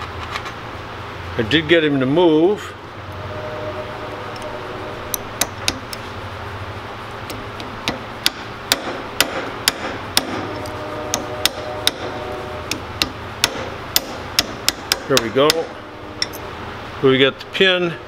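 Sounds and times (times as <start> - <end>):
hammer tapping metal punch: 4.3 - 6.2, 7.2 - 16.4.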